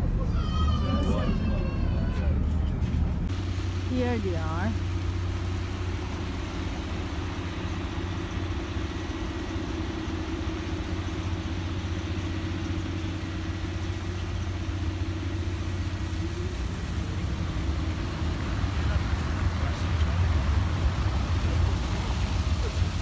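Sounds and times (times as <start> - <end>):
city traffic rumble: 0.0 - 23.0
engine hum: 0.0 - 23.0
constant hiss: 3.2 - 23.0.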